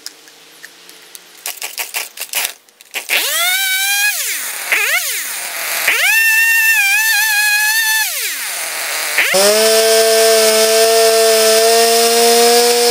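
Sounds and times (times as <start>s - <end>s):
chainsaw starter cord tugs: 1.7s - 12.9s
chainsaw engine revving and bogging: 3.1s - 12.9s.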